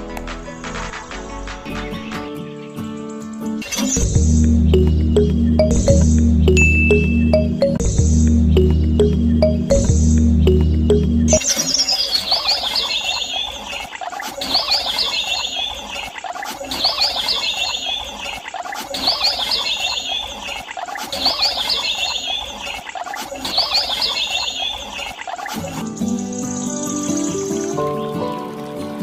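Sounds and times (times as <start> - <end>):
background bird chorus: 10.4 - 29.0
bird twittering phrase: 10.5 - 22.8, 23.4 - 27.8.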